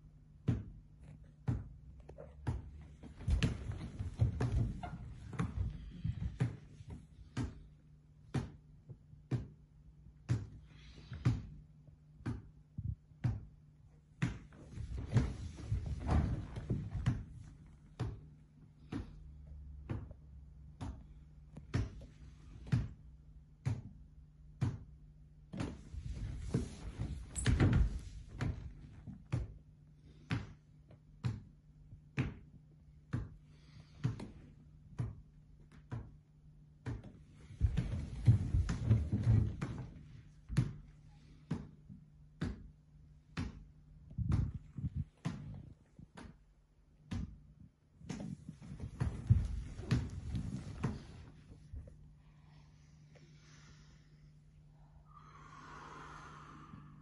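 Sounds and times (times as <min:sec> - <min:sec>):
thuds and shuffling: 0:01.4 - 0:07.7, 0:14.2 - 0:19.2, 0:37.4 - 0:40.9, 0:44.1 - 0:46.3, 0:48.0 - 0:51.9.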